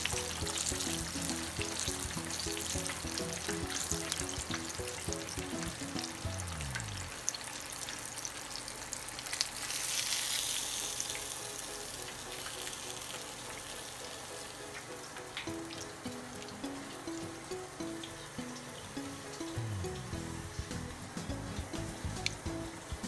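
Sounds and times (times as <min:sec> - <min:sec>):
background music: 0:00.0 - 0:07.2, 0:10.9 - 0:23.0
fish sizzling in hot oil: 0:00.0 - 0:23.0.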